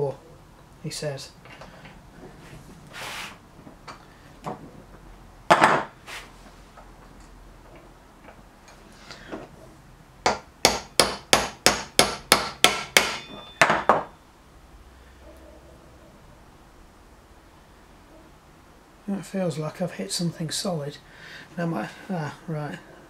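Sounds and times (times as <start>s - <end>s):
hammer tapping metal: 10.2s - 14.2s.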